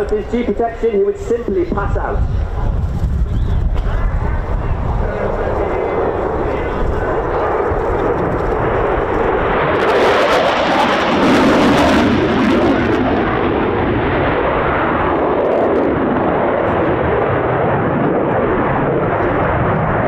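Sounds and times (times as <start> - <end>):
loud rushing jet noise: 0.0 - 20.0.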